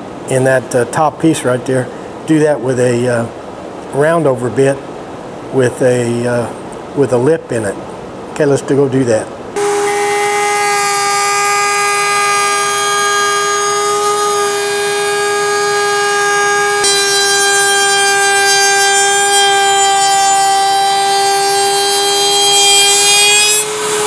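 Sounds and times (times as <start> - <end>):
router high whine: 9.6 - 24.0.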